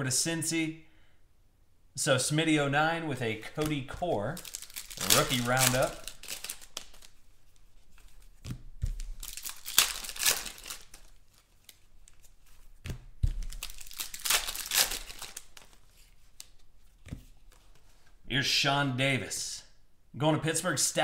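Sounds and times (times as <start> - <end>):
foil wrappers crinkling and tearing: 3.5 - 12.4, 13.2 - 16.6.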